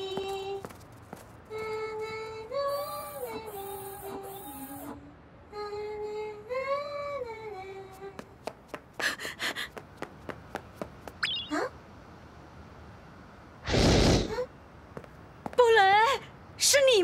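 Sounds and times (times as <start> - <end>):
light animated footsteps: 0.0 - 2.2, 7.9 - 11.5, 14.9 - 15.8
rising electronic chirp: 11.2 - 11.7.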